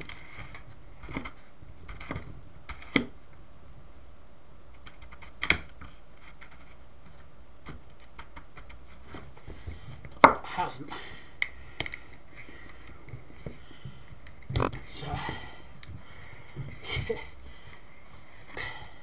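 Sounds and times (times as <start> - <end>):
plastic fan parts clicking: 0.0 - 3.2, 11.4 - 12.1.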